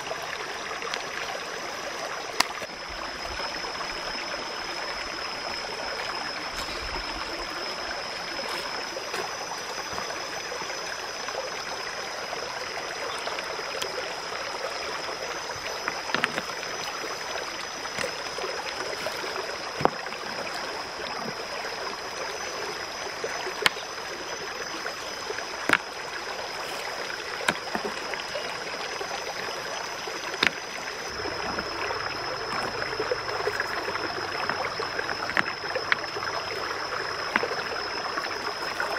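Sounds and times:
stream rushing over rocks: 0.0s - 38.9s
stones knocking together: 8.5s - 10.1s, 15.8s - 16.8s, 17.9s - 18.3s, 19.0s - 20.6s, 25.6s - 26.0s, 27.4s - 28.1s, 30.3s - 37.7s.

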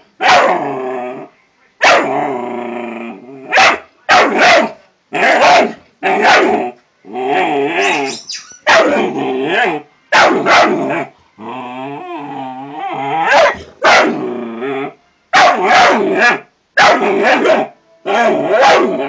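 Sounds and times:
puppy barking: 0.2s - 0.6s, 1.8s - 2.1s, 3.5s - 6.6s, 8.6s - 9.1s, 10.1s - 11.1s, 13.3s - 14.2s, 15.3s - 19.0s.

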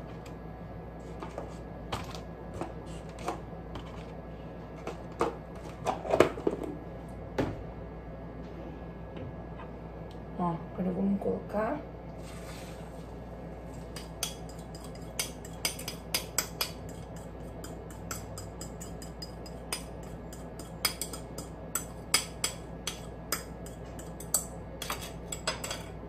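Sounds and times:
spatula scraping and tapping bowl: 13.8s - 25.9s.

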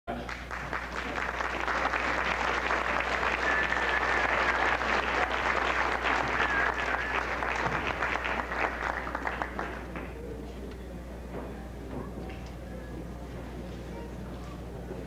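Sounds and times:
audience applauding: 0.1s - 10.2s.

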